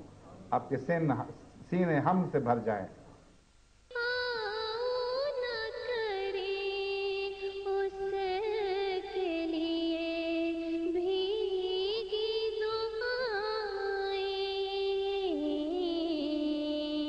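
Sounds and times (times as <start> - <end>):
person singing unaccompanied: 3.9 - 17.0.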